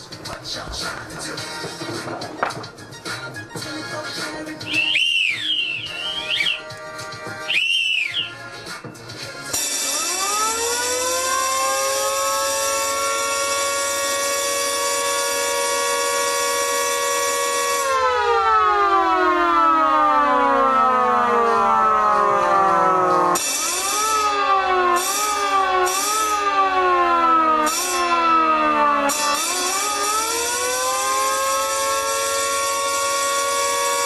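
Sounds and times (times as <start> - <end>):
siren swinging up and down: 4.6 - 8.5, 9.6 - 34.0
alarm bells ringing: 9.6 - 14.6, 18.0 - 27.0, 27.7 - 34.0
motor-driven siren winding: 23.4 - 26.5, 29.1 - 34.0.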